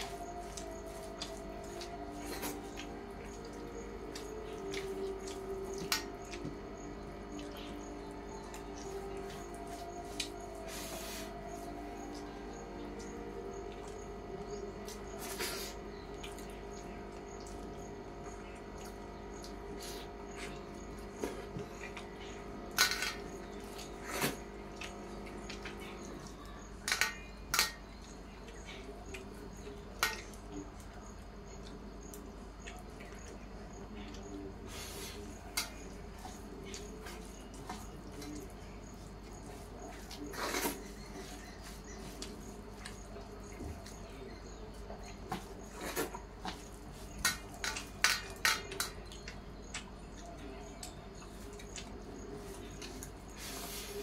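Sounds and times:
hands mixing rice on metal plate: 0.0s - 17.6s, 34.0s - 54.0s
wet eating sounds: 0.0s - 54.0s.

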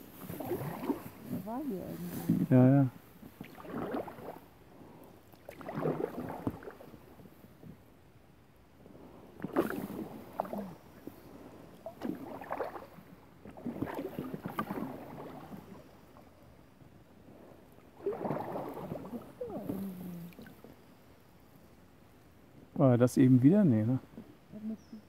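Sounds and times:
paddle splashing and dripping: 0.0s - 7.8s, 8.8s - 21.0s.

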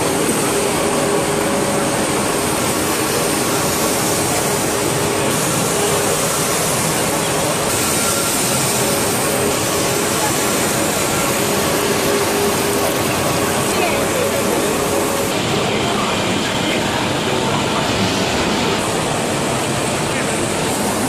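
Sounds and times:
coolant hissing: 0.0s - 16.0s.

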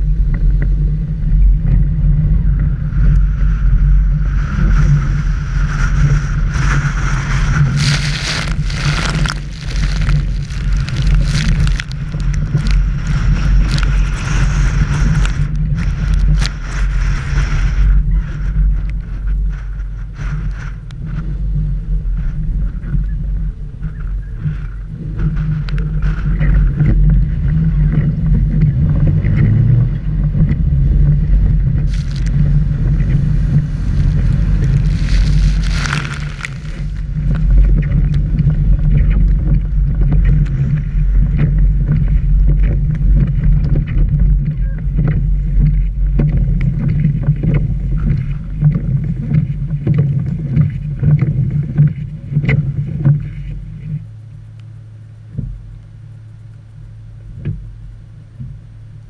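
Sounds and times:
car engine and tyres rumbling: 0.0s - 59.0s
water and mud spraying: 5.0s - 17.8s, 31.6s - 38.0s.

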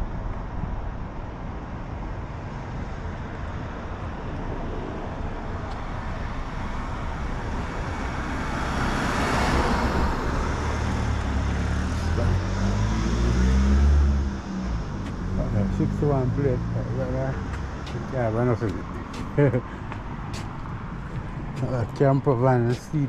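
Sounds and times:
road traffic rumble: 0.0s - 23.0s
vehicle passing close: 4.0s - 23.0s
engine speeding up: 7.2s - 18.8s.

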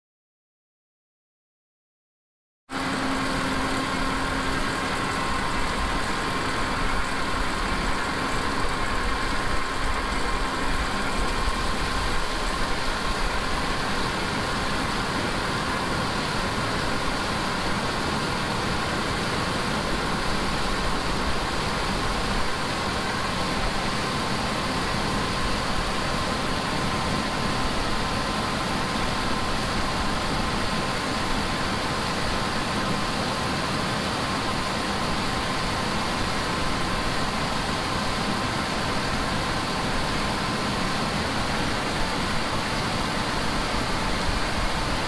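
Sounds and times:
farm machine engine running: 2.7s - 25.0s
faint steady whine: 2.7s - 45.0s.

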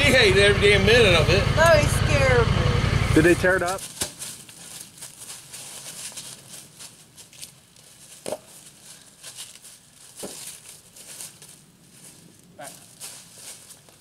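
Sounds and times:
rake scraping dry leaves: 3.6s - 14.0s.

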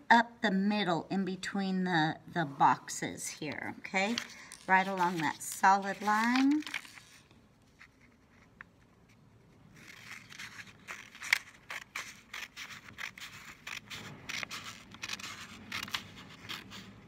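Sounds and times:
paper rustling: 3.9s - 17.0s
scissors snipping paper: 4.0s - 7.1s, 9.8s - 17.0s.

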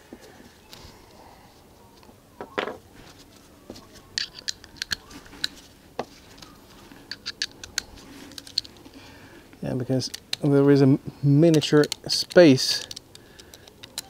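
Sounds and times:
metallic clicks of hand tools: 7.1s - 8.7s, 10.0s - 10.5s, 11.5s - 14.0s.

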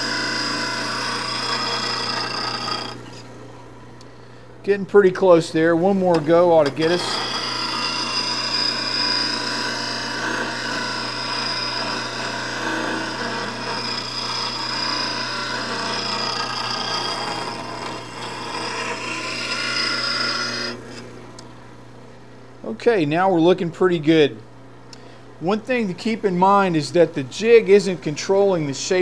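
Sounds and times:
grinder wheel grinding steel: 0.0s - 3.2s, 6.1s - 21.1s
grinder motor hum: 0.0s - 3.5s, 5.6s - 21.6s.

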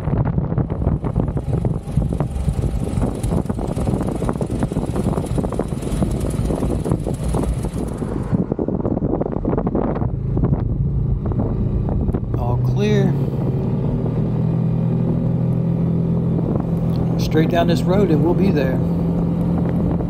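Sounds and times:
wind rushing over microphone: 0.0s - 20.0s
scooter engine running: 0.7s - 9.0s.

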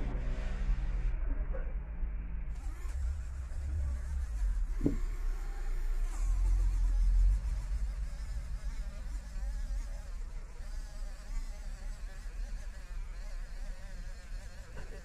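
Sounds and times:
electric rotary tool buzzing: 2.6s - 7.3s.

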